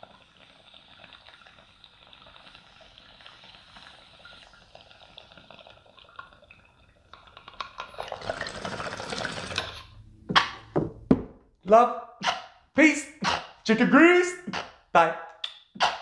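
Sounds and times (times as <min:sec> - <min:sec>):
water bubbling in a bong: 0:00.0 - 0:10.0.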